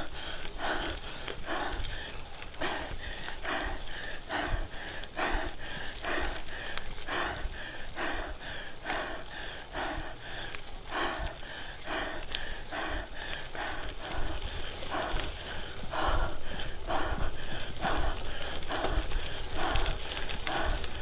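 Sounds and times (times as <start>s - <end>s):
person breathing hard: 0.0s - 21.0s.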